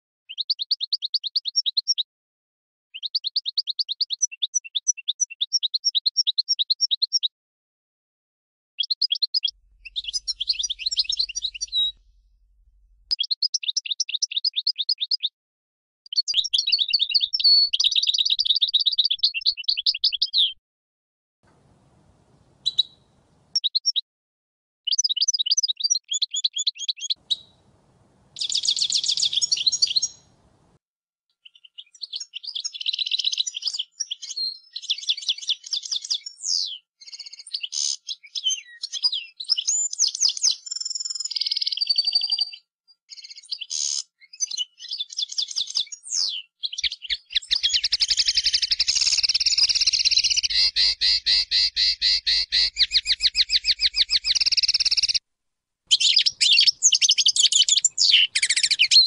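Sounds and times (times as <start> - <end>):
goldfinch singing trills: 8.8 - 12.0, 22.6 - 24.0, 28.4 - 30.4, 43.2 - 55.2, 55.9 - 59.0.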